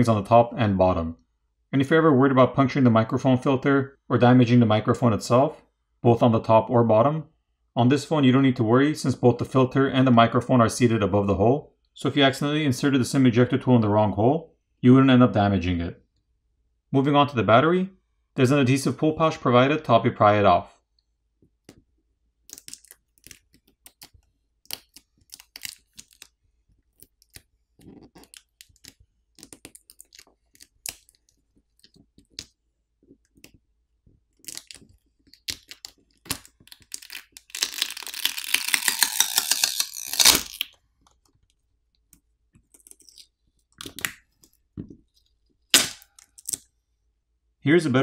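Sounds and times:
sharp crack: 0:35.5 - 0:40.7, 0:45.7 - 0:46.6.

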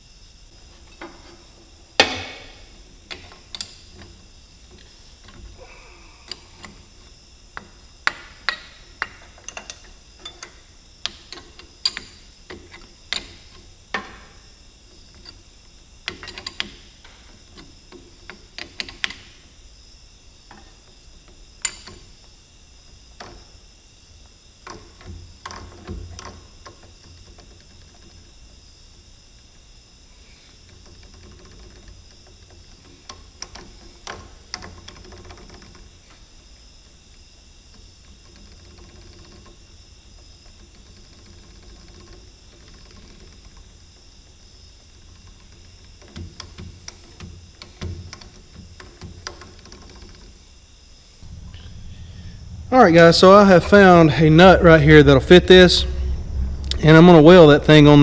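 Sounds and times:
faint high hum: 0:00.0 - 0:58.0
metal clicks and knocks: 0:07.6 - 0:14.3.

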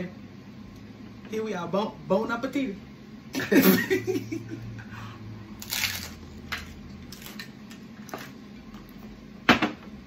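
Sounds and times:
taco shell crunching: 0:05.6 - 0:07.6.

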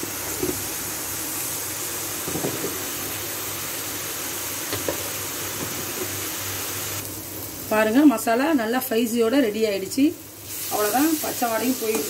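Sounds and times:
onions frying in oil: 0:00.0 - 0:12.0.

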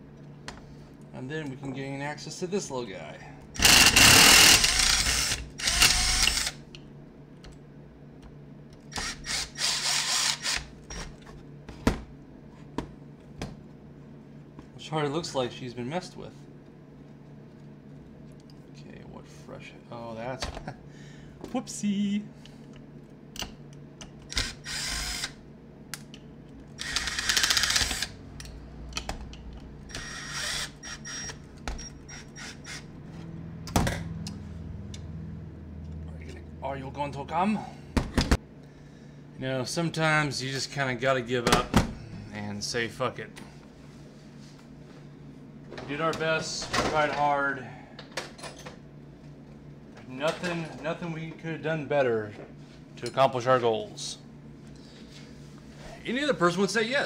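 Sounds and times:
cordless drill running: 0:03.6 - 0:06.6, 0:08.9 - 0:10.7, 0:24.3 - 0:25.4, 0:26.8 - 0:28.2, 0:29.9 - 0:31.4.

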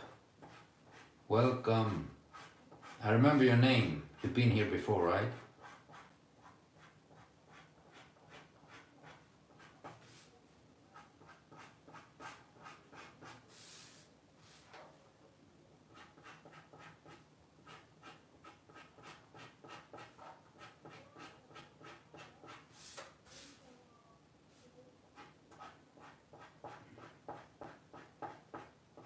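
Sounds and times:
pen scratching on paper: 0:00.4 - 0:01.2, 0:02.3 - 0:03.1, 0:05.3 - 0:10.3, 0:10.9 - 0:13.9, 0:15.9 - 0:23.4, 0:25.2 - 0:29.0.

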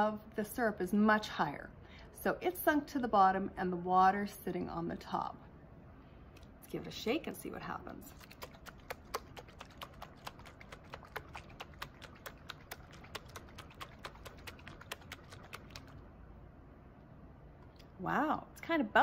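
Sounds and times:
glass jar being shaken: 0:08.1 - 0:16.0.

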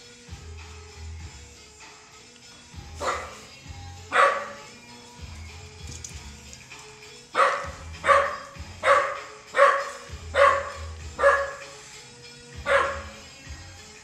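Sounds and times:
dog barking: 0:03.0 - 0:03.5, 0:04.1 - 0:04.7, 0:07.4 - 0:11.8, 0:12.6 - 0:13.2.

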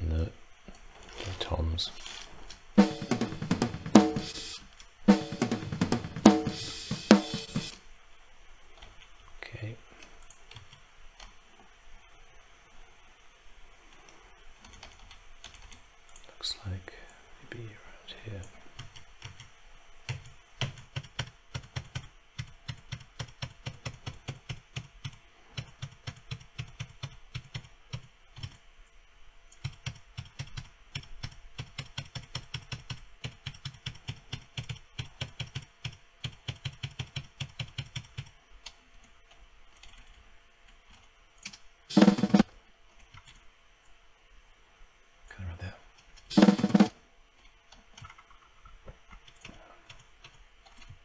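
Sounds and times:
computer keyboard typing: 0:14.6 - 0:16.2, 0:18.8 - 0:28.6, 0:29.5 - 0:40.2, 0:40.9 - 0:42.4, 0:43.0 - 0:43.4, 0:47.7 - 0:51.0.

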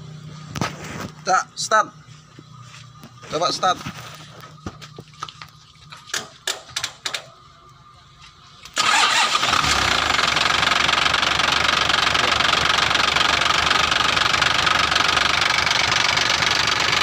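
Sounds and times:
diesel truck engine running: 0:08.7 - 0:17.0.

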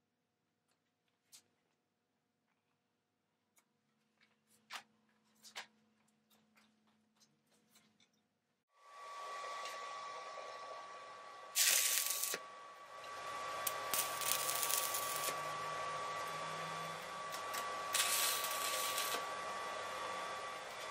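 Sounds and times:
welding hiss with high whine: 0:08.8 - 0:20.9
welding arc crackling: 0:11.5 - 0:12.4, 0:13.6 - 0:15.6, 0:16.2 - 0:19.4.

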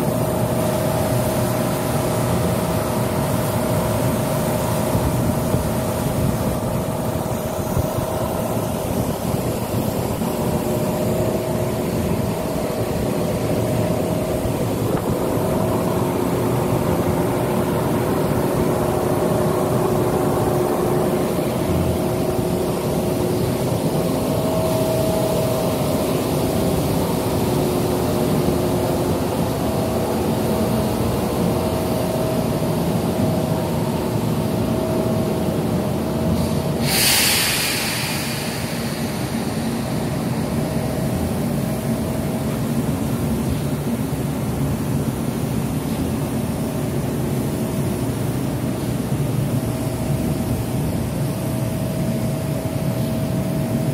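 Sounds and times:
machine rumble: 0:00.0 - 0:53.9
air hissing out: 0:36.2 - 0:44.3.

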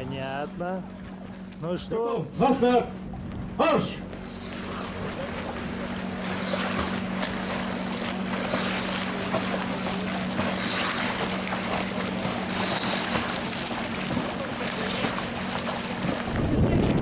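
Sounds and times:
steady low hum: 0:00.0 - 0:17.0
swimmers splashing: 0:03.8 - 0:16.6
wind on microphone: 0:16.0 - 0:17.0.

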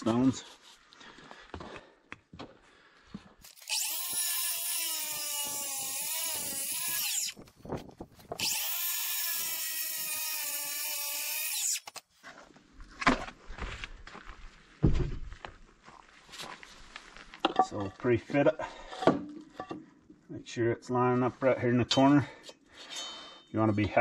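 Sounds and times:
angle grinder cutting stone: 0:03.5 - 0:07.4, 0:08.4 - 0:11.9.

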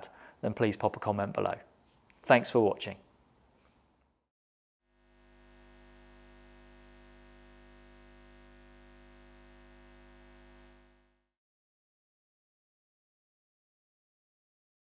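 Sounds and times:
faint electrical hum: 0:05.0 - 0:11.3.

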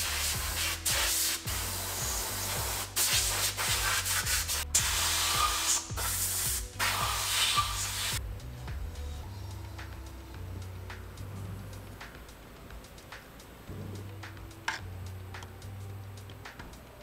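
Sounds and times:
air blow gun hissing: 0:00.0 - 0:08.2
background music with bass line: 0:00.0 - 0:17.0.

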